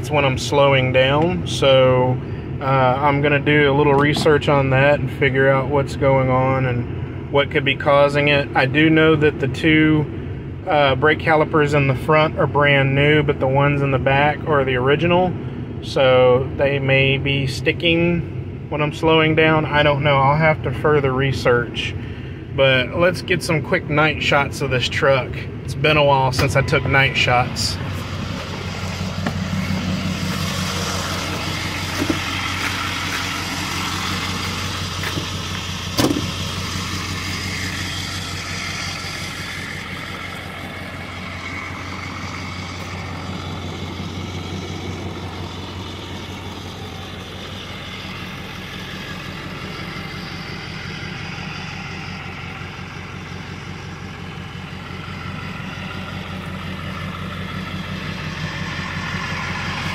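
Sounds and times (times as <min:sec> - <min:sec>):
diesel engine idling: 0:00.0 - 0:59.9
engine knock: 0:28.5 - 0:59.9.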